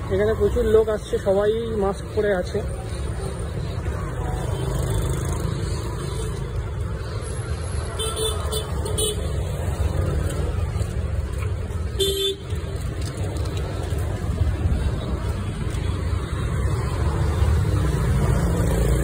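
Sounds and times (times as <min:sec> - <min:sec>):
road traffic noise: 0:00.0 - 0:19.0
vehicle horn honking: 0:12.0 - 0:12.4.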